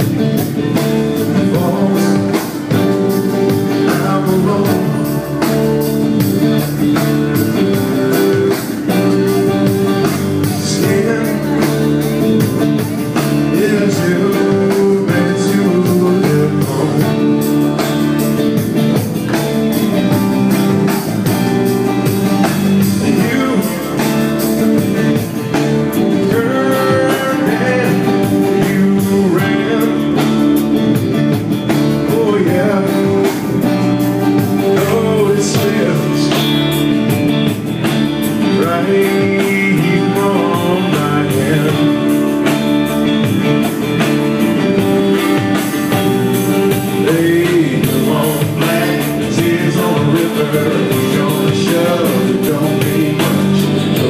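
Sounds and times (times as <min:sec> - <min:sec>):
man singing: 0:00.0 - 0:18.3, 0:22.0 - 0:31.0, 0:31.9 - 0:37.2, 0:38.3 - 0:42.6, 0:46.5 - 0:54.0
electric guitar: 0:00.0 - 0:54.0
strummed acoustic guitar: 0:00.0 - 0:54.0.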